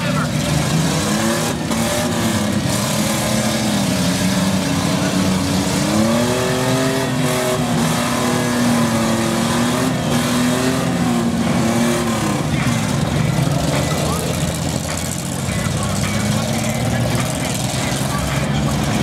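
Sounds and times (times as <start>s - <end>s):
minivan engines revving: 0.0s - 19.0s.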